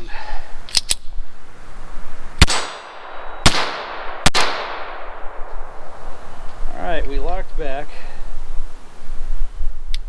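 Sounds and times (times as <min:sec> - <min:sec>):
pistol shots: 0:02.4 - 0:05.3.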